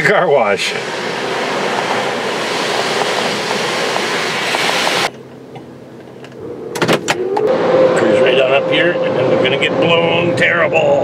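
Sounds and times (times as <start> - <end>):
high-pressure water jets hissing: 0.0 - 5.1.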